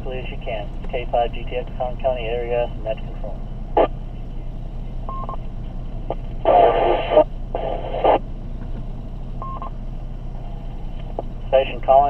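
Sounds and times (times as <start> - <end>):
low hum: 0.0 - 12.0
radio static bursts: 6.1 - 8.2.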